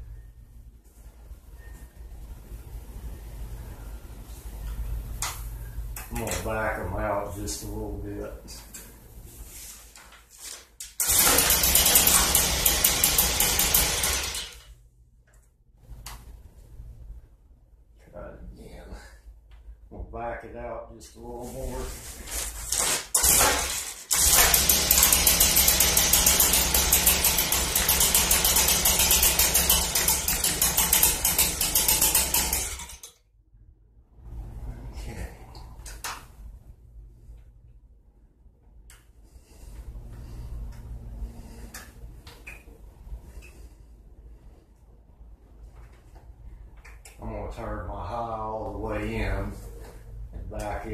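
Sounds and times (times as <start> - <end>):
leaf blower engine stalling: 11.0 - 14.6, 23.1 - 33.0.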